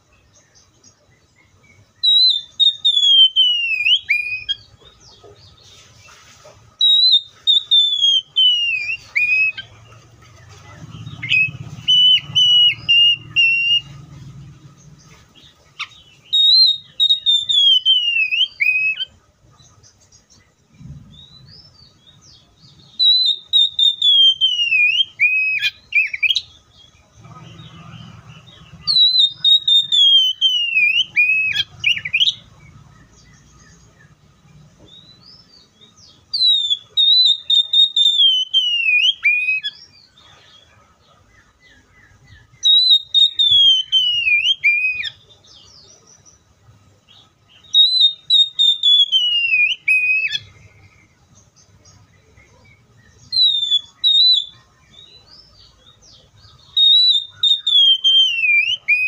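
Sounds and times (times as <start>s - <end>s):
bird singing whistled phrases: 2.0s - 4.7s, 6.8s - 9.8s, 11.0s - 14.1s, 15.4s - 19.2s, 21.0s - 26.6s, 27.7s - 32.7s, 34.9s - 39.9s, 42.2s - 45.8s, 47.5s - 50.6s, 53.0s - 55.4s, 56.5s - 59.0s.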